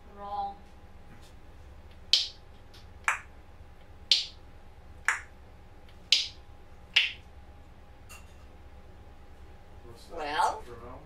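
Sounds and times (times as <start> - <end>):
parrot clicking: 1.9 - 2.4, 3.0 - 4.4, 5.0 - 7.2.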